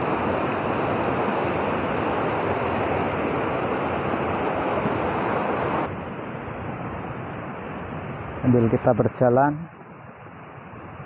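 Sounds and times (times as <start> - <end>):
stream rushing over rocks: 0.0 - 6.0.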